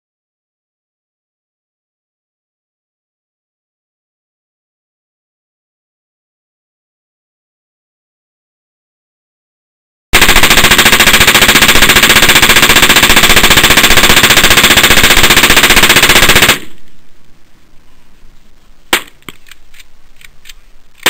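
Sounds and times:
automatic rifle burst: 0:10.2 - 0:16.8.

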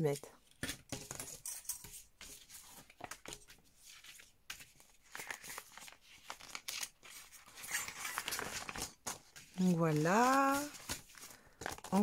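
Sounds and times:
plastic packaging crinkling: 0:04.6 - 0:12.0.

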